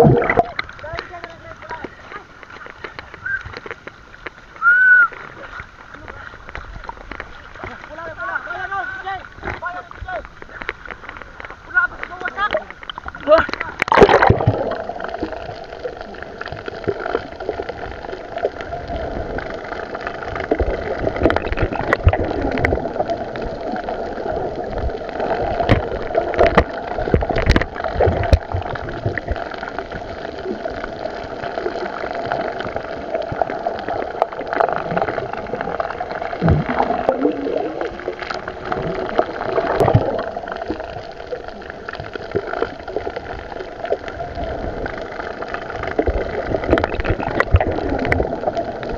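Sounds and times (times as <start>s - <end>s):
steady underwater hum: 0.0s - 48.9s
water gurgling: 0.0s - 48.9s.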